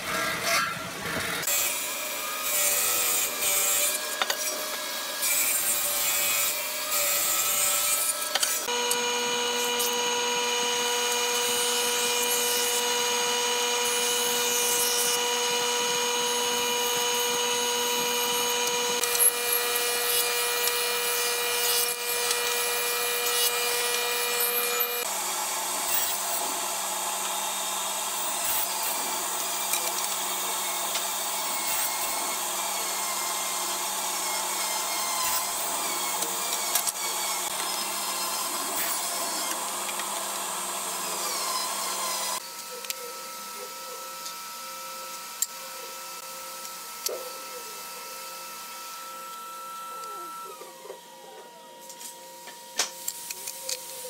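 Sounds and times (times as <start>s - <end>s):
table saw ripping wood: 0.0s - 42.6s
jointer cutting wood: 0.0s - 54.0s.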